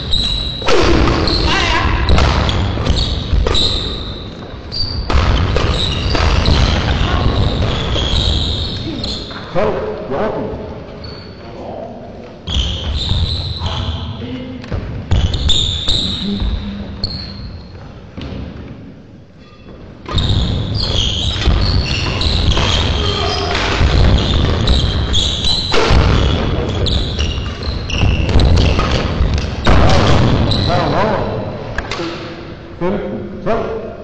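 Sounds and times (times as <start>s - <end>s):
shoes squeaking: 0.0s - 1.7s, 2.5s - 9.5s, 15.1s - 18.3s, 19.4s - 29.6s
rackets hitting shuttlecock: 5.1s - 6.9s.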